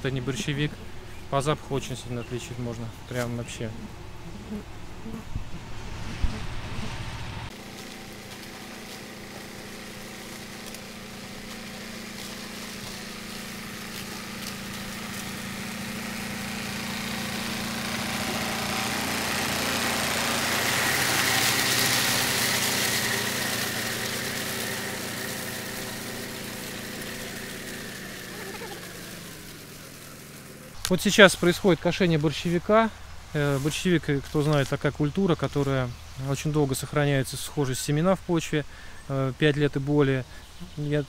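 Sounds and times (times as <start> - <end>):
tractor engine running: 0.0 - 36.5
mower cutting tall stalks: 0.0 - 41.0.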